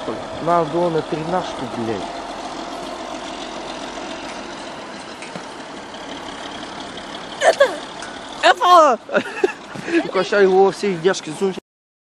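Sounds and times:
high-pitched voice cry: 0:07.4 - 0:07.8.

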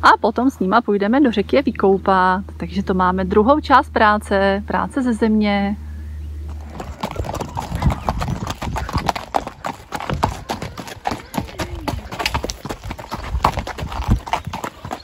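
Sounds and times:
horse hooves on gravel: 0:06.4 - 0:15.0.

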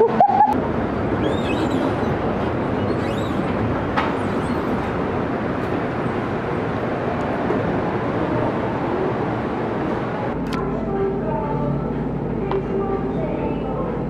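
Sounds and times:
faint high squeaks: 0:01.2 - 0:02.1, 0:02.8 - 0:03.6.

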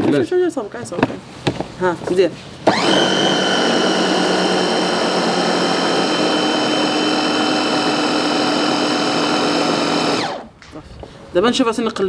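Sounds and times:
food chopper motor whining: 0:02.7 - 0:10.6.

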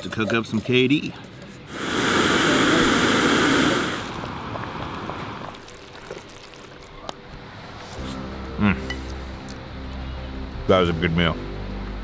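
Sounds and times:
camp stove burner hissing: 0:01.6 - 0:06.8.

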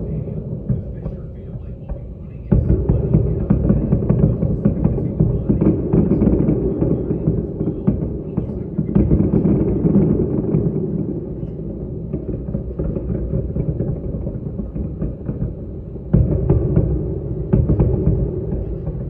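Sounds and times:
building implosion rumble: 0:00.0 - 0:19.0.

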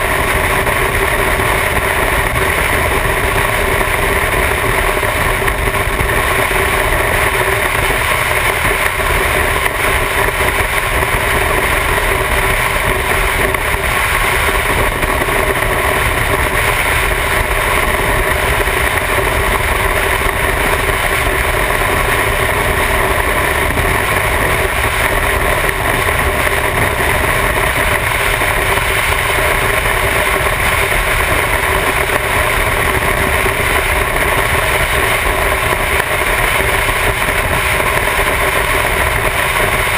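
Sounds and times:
wind and road noise: 0:00.0 - 0:39.9.

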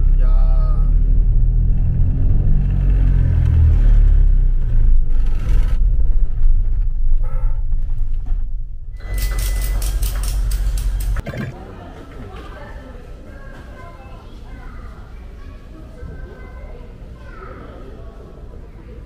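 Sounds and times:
car driving rumble: 0:00.0 - 0:09.0
ratchet strap clicking: 0:09.1 - 0:11.2.

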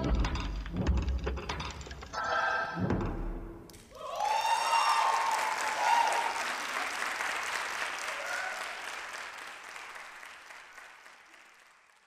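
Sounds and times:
audience applauding: 0:03.9 - 0:12.0.

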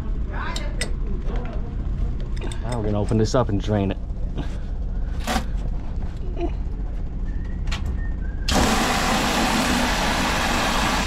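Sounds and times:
steady low hum: 0:00.0 - 0:11.0
pressurised water hissing from drain: 0:08.5 - 0:11.0.

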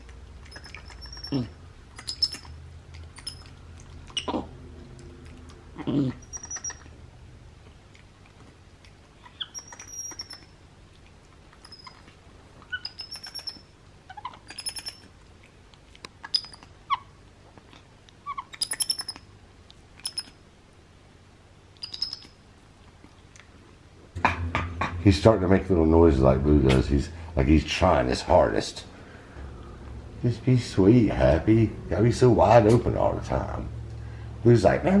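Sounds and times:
monkey chirping and squeaking: 0:00.4 - 0:04.4, 0:05.8 - 0:07.0, 0:09.2 - 0:10.6, 0:11.6 - 0:15.1, 0:16.2 - 0:17.1, 0:18.2 - 0:19.3, 0:20.0 - 0:20.4, 0:21.8 - 0:22.4.

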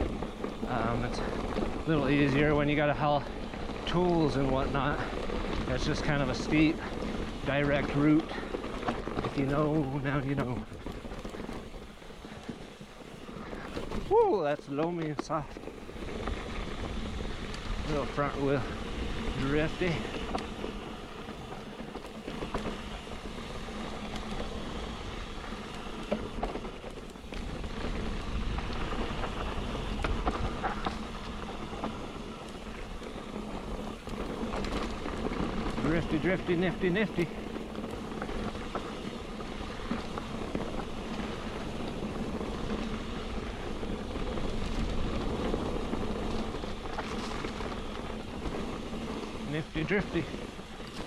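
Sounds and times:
bike tyres scrabbling through soil: 0:00.0 - 0:51.0
wind rumble on microphone: 0:00.0 - 0:51.0.

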